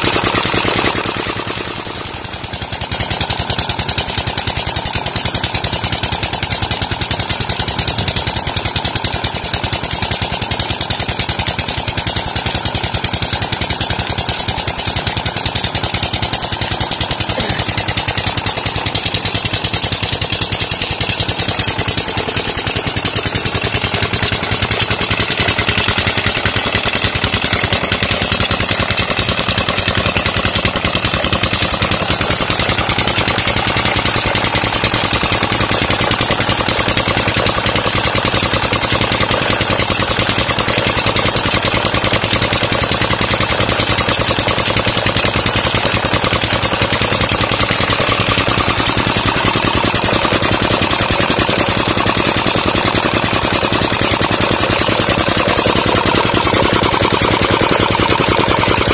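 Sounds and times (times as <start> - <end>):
diesel engine running: 0.0 - 58.9.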